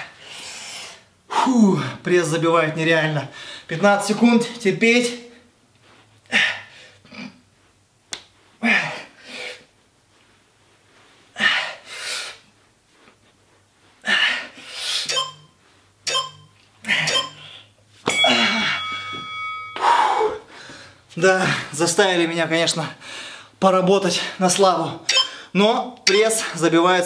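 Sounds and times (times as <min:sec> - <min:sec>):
man breathing heavily with grunts: 0:19.8 - 0:21.8.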